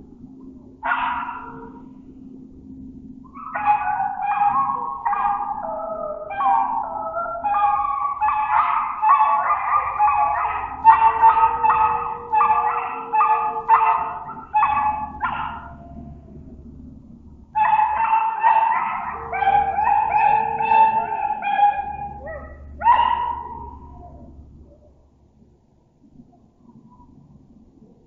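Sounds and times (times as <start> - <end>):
animal yips and howls: 0.8 - 2.0, 2.7 - 16.4, 17.6 - 25.0.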